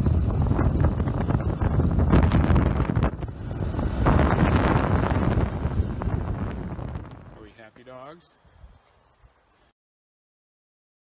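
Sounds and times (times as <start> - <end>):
outdoor wind and ride noise: 0.0 - 9.7.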